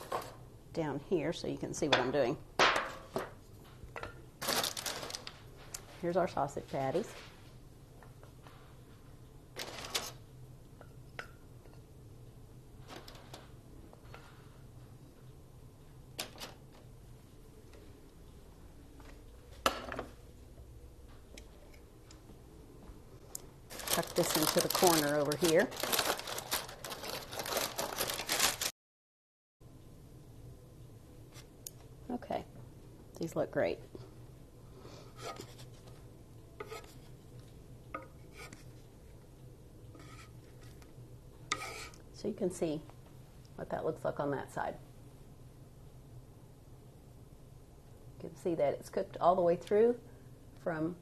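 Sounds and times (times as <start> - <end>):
spatula scraping on metal griddle: 40.0 - 40.4, 41.5 - 42.0.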